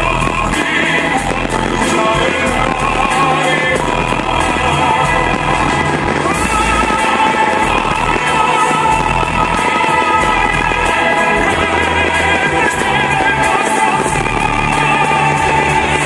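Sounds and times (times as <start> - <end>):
sustained bass: 0.0 - 16.0.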